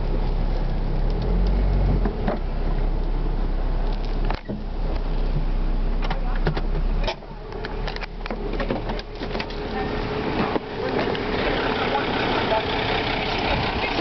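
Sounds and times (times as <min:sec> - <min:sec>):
truck engine idling: 0:02.1 - 0:14.0
handling clicks and knocks in car: 0:03.9 - 0:09.7.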